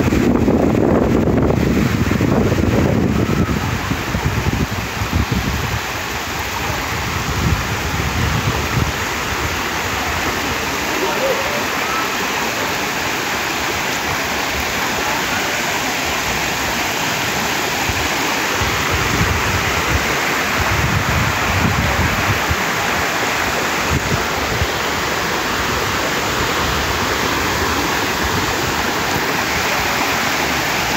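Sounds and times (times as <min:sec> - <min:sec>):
water rushing down dam spillway: 0:00.0 - 0:30.9
low rumbling: 0:15.8 - 0:30.9.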